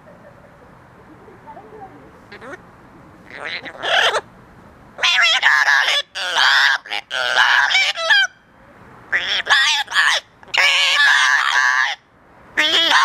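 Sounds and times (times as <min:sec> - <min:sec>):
parrots squawking: 0:02.3 - 0:02.6, 0:03.2 - 0:04.3, 0:05.0 - 0:08.4, 0:09.1 - 0:13.0.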